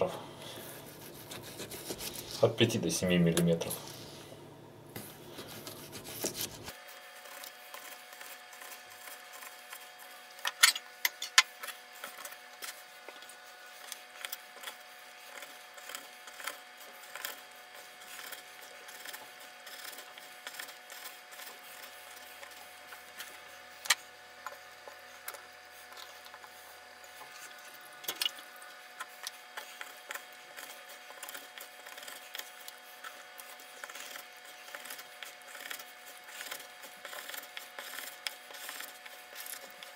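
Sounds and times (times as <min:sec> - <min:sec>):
knife slicing chicken: 0:01.0 - 0:02.4.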